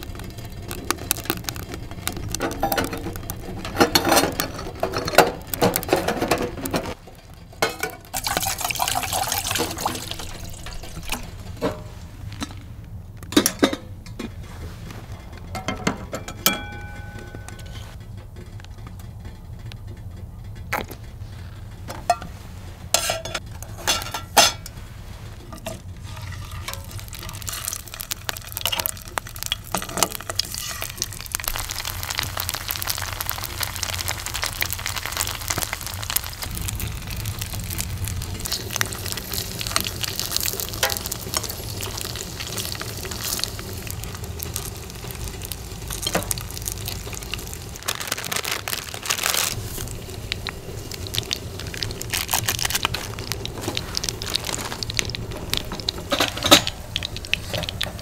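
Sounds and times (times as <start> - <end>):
utensils clinking: 0.0 - 12.6, 15.4 - 17.9, 22.9 - 24.8, 38.3 - 58.0
food sizzling in a pan: 8.1 - 11.5, 26.0 - 58.0.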